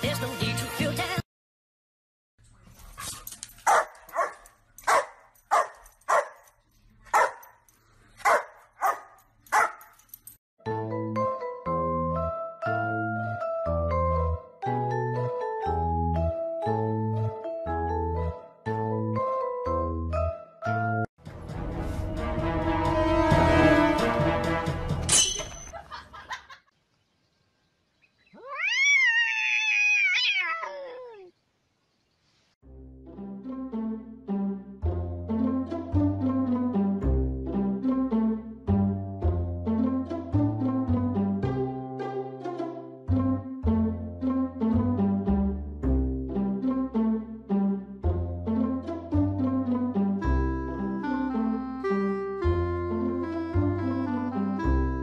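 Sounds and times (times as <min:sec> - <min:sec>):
music: 0:00.0 - 0:01.2, 0:10.6 - 0:25.3, 0:32.6 - 0:55.0
dog barking: 0:03.1 - 0:06.4, 0:07.1 - 0:07.6, 0:08.2 - 0:09.9
cat yowling: 0:28.3 - 0:31.3.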